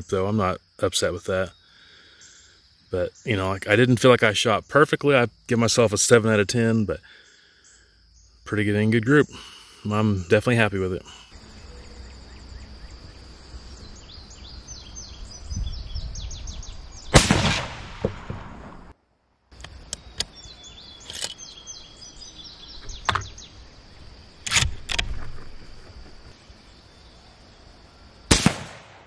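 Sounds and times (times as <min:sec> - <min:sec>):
rifle shot with echo: 0:17.1 - 0:18.9, 0:28.3 - 0:29.0.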